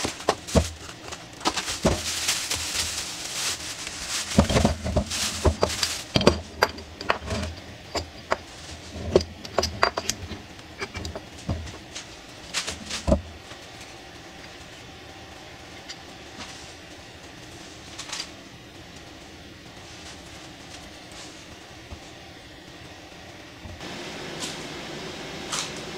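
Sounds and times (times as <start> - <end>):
plastic bag rustling: 0.0 - 7.7, 11.1 - 14.3
steady low hum: 0.0 - 25.9.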